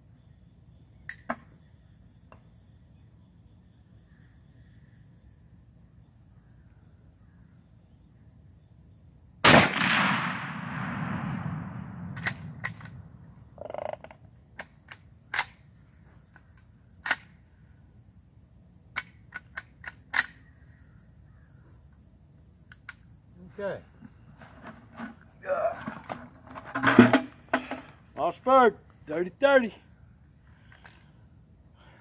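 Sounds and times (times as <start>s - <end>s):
rifle shot with echo: 9.4s - 13.2s.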